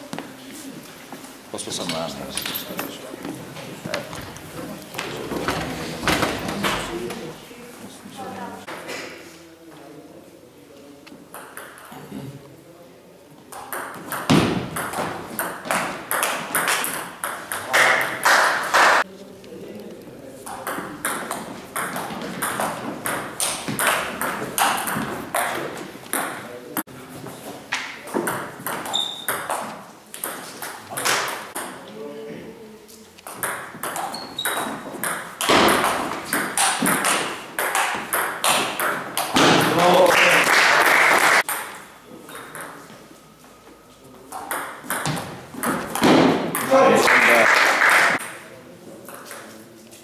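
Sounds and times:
ball bouncing on table: 0:13.5 - 0:17.7, 0:33.3 - 0:39.8, 0:44.3 - 0:46.7.

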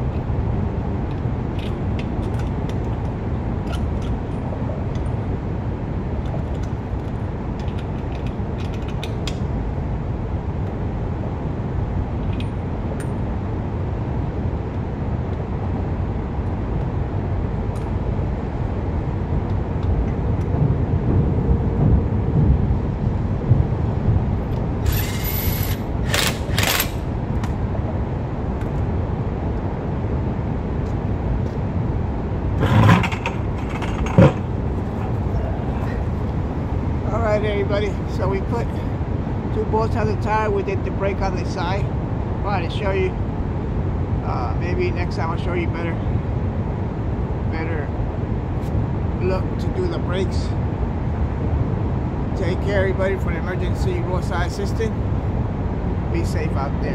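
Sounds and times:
low background rumble: 0:00.0 - 0:56.9
hand ratchet clicking: 0:24.9 - 0:27.0.

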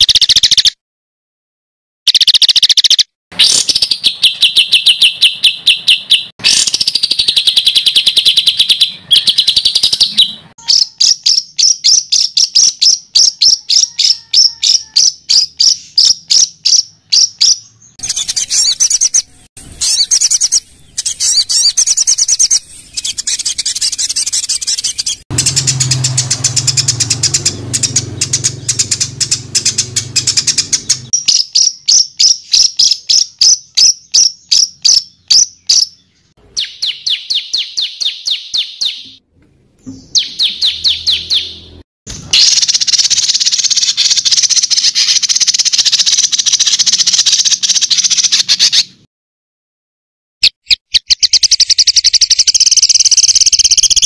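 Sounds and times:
songbird rapid trills: 0:18.0 - 0:33.6.

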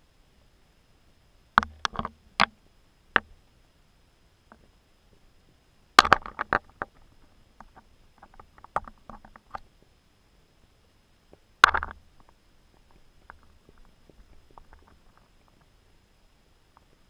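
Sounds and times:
clicks and knocks on camera housing: 0:01.6 - 0:02.6, 0:06.0 - 0:07.0, 0:11.6 - 0:12.0.

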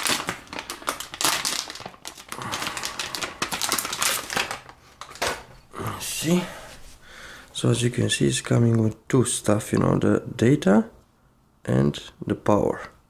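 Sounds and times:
plastic bag crinkling: 0:00.0 - 0:05.6.

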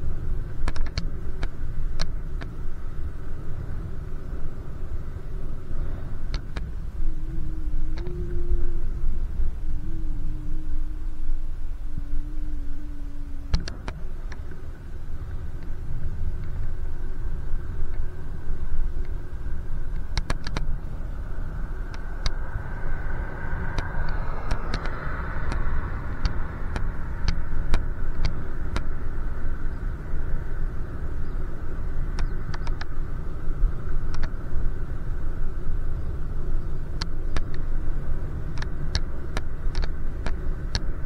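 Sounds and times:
wind and road rumble: 0:00.0 - 0:41.0
sharp clicks and rattles: 0:00.5 - 0:02.6, 0:19.9 - 0:20.8, 0:23.7 - 0:28.9, 0:32.1 - 0:33.0, 0:38.5 - 0:40.9
motor vehicle passing: 0:12.0 - 0:41.0.

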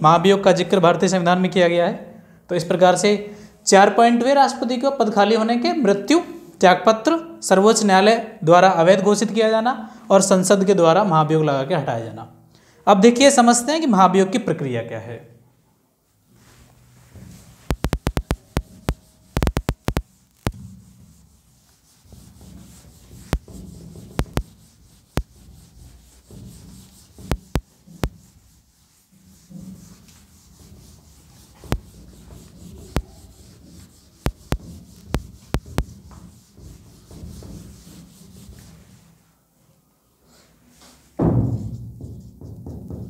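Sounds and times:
duster rubbing on whiteboard: 0:16.3 - 0:39.2
sharp clicks and knocks: 0:17.6 - 0:20.7, 0:23.2 - 0:25.4, 0:27.2 - 0:28.2, 0:34.2 - 0:36.3.

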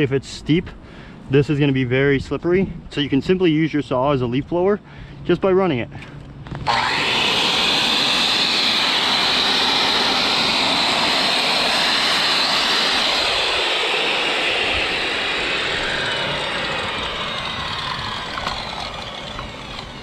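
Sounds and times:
circular saw running: 0:06.5 - 0:20.0.

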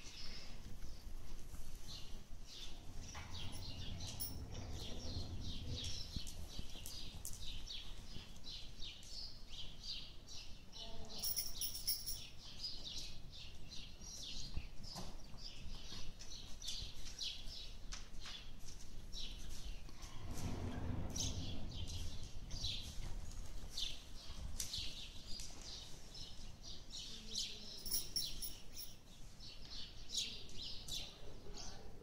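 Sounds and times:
small birds chirping: 0:01.8 - 0:19.9.

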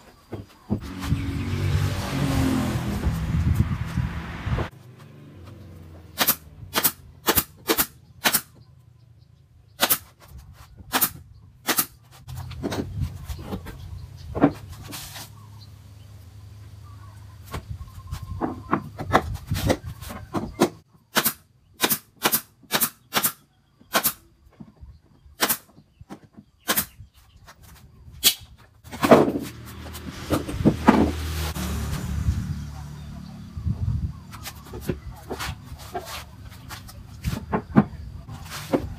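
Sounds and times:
nail gun shots: 0:06.2 - 0:08.6, 0:09.8 - 0:10.1, 0:10.9 - 0:12.0, 0:21.1 - 0:24.2, 0:25.4 - 0:25.7, 0:26.6 - 0:27.0.

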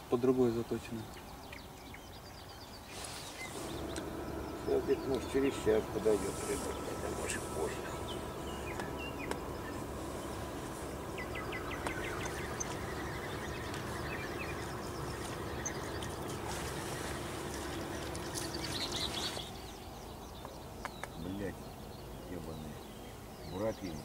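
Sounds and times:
small birds chirping: 0:00.0 - 0:24.0
even hiss: 0:02.8 - 0:19.8
low hum: 0:03.5 - 0:20.4.

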